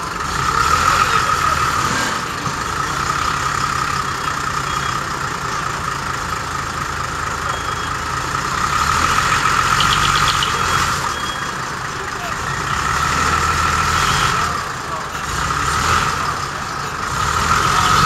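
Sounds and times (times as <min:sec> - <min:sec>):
diesel truck engine idling: 0:00.0 - 0:18.0
rapid chirping: 0:09.3 - 0:11.6.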